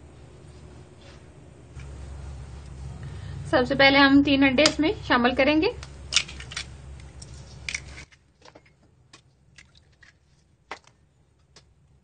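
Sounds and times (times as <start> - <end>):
low background hum: 0.0 - 12.0
eggshells cracking: 5.8 - 8.2.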